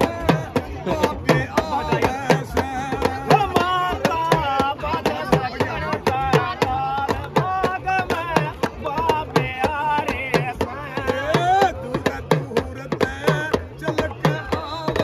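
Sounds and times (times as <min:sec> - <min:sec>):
hand drums beaten with sticks: 0:00.0 - 0:15.0
man singing folk song: 0:00.0 - 0:15.0.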